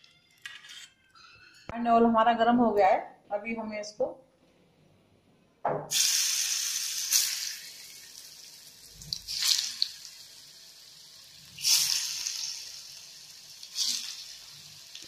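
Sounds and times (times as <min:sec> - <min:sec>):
hot oil sizzling: 0:05.9 - 0:15.0.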